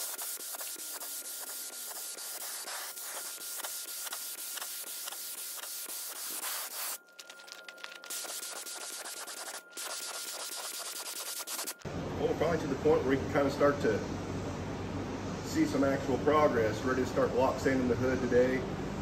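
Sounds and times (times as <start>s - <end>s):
spray gun hissing: 0.0s - 7.0s, 8.0s - 11.8s.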